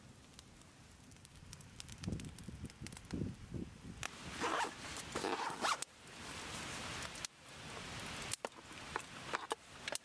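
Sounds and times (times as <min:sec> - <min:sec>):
zipper being pulled: 0:04.4 - 0:05.8.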